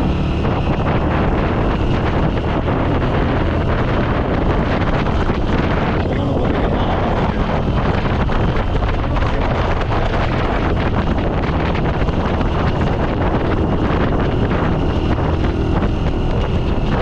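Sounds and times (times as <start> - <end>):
motorcycle engine running: 0.0 - 17.0
wind buffeting microphone: 0.0 - 17.0.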